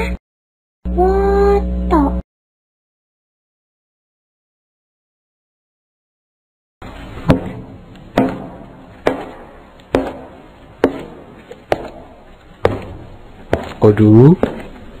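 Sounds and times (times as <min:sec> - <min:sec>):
sharp footsteps: 0:07.1 - 0:15.0.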